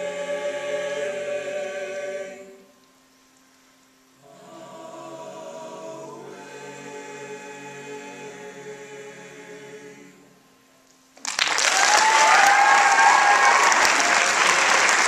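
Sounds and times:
choir singing held chord: 0:00.0 - 0:02.7, 0:04.2 - 0:10.5
audience applause: 0:11.2 - 0:15.0.

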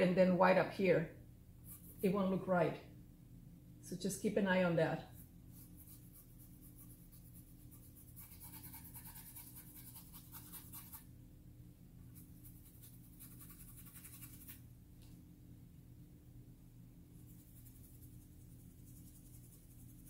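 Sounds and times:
paintbrush scrubbing on canvas: 0:05.1 - 0:11.0.

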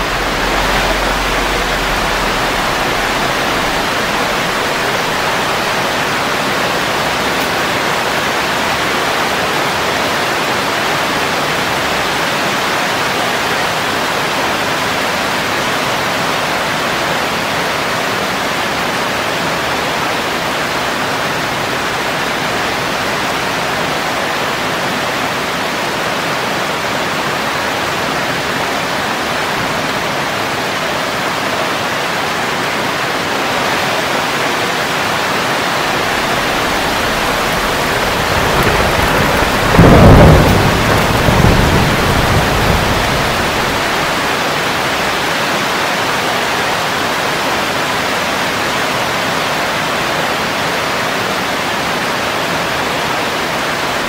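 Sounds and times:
rolling thunder: 0:00.0 - 0:08.9, 0:35.4 - 0:45.3
heavy rain falling on leaves: 0:00.0 - 0:54.0.

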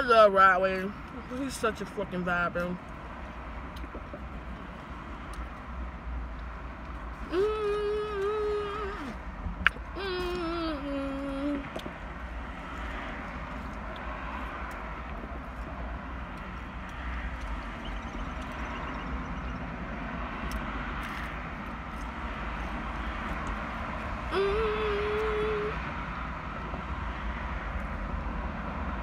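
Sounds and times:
car engine idling: 0:00.0 - 0:20.5
woman humming: 0:07.2 - 0:09.2, 0:09.9 - 0:11.7, 0:24.3 - 0:25.8.

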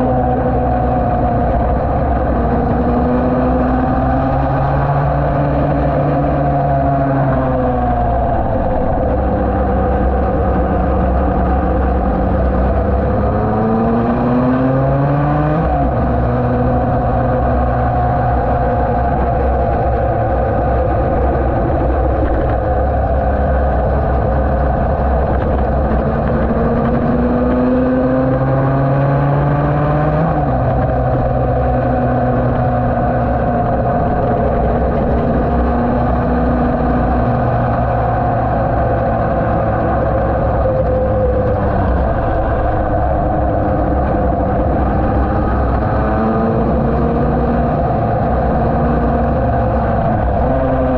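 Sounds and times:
racing engine revving: 0:00.0 - 0:50.9
wind rush on microphone: 0:00.0 - 0:50.9.

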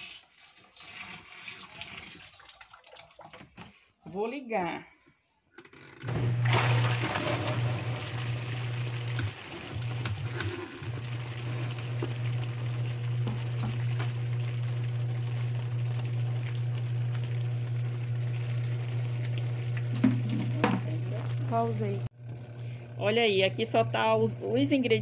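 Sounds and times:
agitator churning water: 0:00.0 - 0:03.6, 0:06.1 - 0:25.0
washing machine motor hum: 0:06.0 - 0:25.0.

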